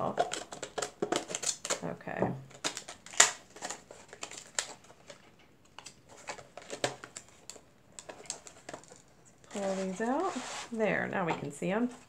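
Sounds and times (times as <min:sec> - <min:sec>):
paperboard box being handled: 0:08.0 - 0:12.0.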